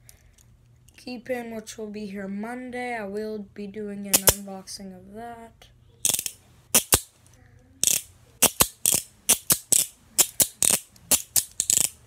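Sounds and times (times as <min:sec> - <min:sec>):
handcuff ratchet clicking: 0:04.2 - 0:04.4, 0:06.0 - 0:07.1, 0:07.8 - 0:12.0.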